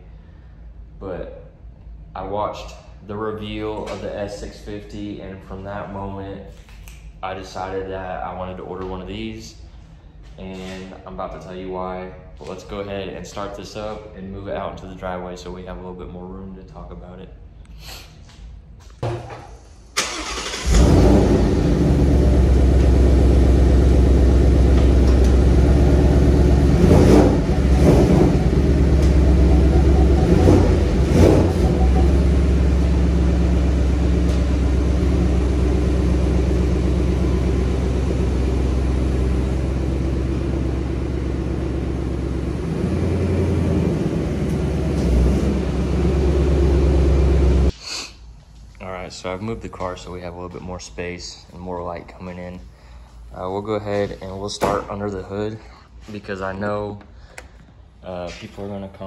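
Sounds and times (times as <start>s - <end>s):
car engine starting: 20.0s - 47.7s
engine throttle blips: 20.1s - 47.7s
car engine idling: 20.2s - 47.7s.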